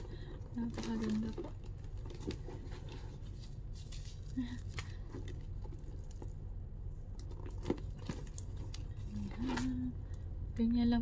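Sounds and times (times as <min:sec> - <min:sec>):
steady low hum: 0:00.0 - 0:11.0
metal chain clinking: 0:07.3 - 0:09.9.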